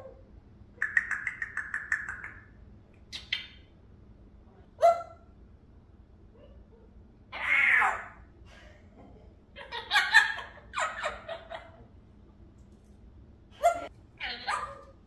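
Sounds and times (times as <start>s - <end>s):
parrot calling: 0.8s - 2.5s, 3.1s - 3.7s, 7.3s - 8.3s, 9.6s - 11.8s, 13.6s - 14.9s
parrot squawks and chatter: 7.3s - 8.3s, 9.6s - 11.8s, 13.6s - 15.0s.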